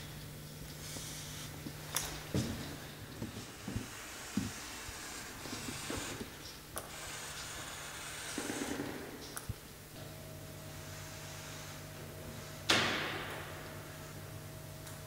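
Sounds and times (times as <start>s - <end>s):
steady low hum: 0.0s - 15.0s
marker scratching on wall: 3.2s - 9.0s.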